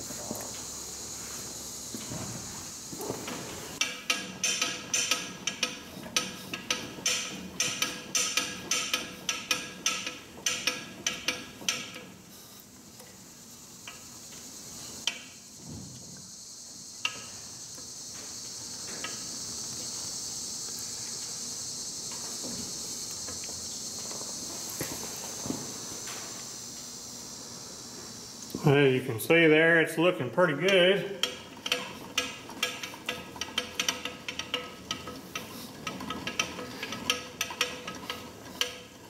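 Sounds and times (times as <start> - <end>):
steady high hiss: 0.0 - 39.0
lathe carriage clicking: 3.8 - 12.2, 30.4 - 39.0.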